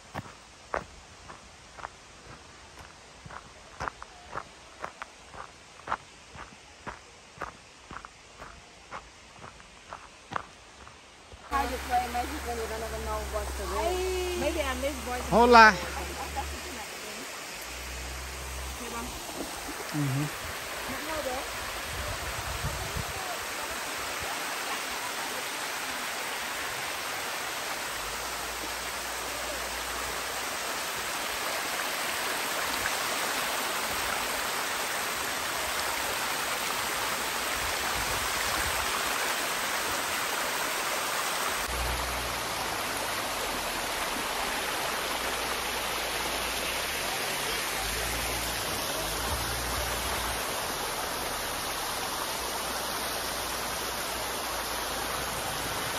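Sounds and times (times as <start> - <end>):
waterfall rushing: 11.5 - 55.9.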